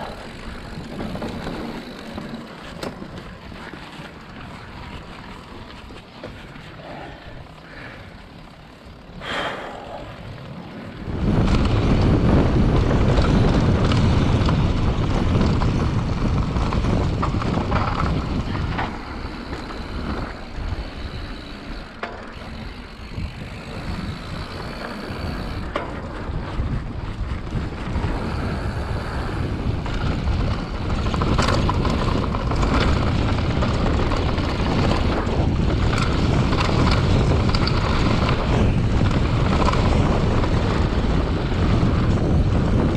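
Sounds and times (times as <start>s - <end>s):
bike rattling: 0.0s - 42.9s
bike tires rolling on dirt trail: 0.0s - 42.9s
wind on camera microphone: 9.2s - 42.9s.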